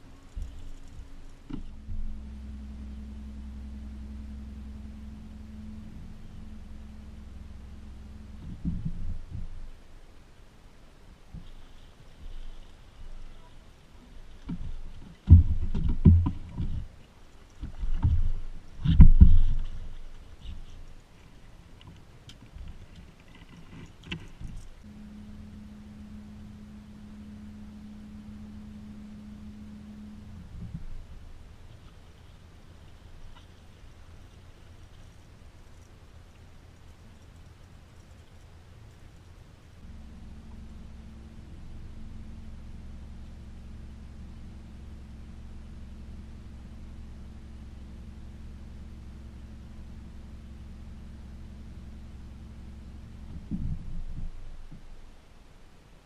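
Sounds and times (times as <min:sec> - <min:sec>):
electric motor humming: 0:00.0 - 0:09.6, 0:24.8 - 0:32.3
electric trolling motor hum: 0:00.0 - 0:21.0, 0:23.4 - 0:54.8
low rumble: 0:00.0 - 0:56.0
low thump: 0:01.0 - 0:09.8, 0:14.5 - 0:16.9, 0:53.3 - 0:54.4.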